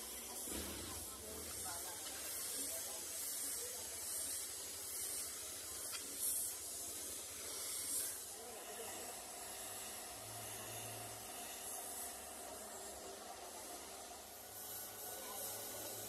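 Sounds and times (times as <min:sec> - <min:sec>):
spray gun hissing: 0:00.0 - 0:16.0.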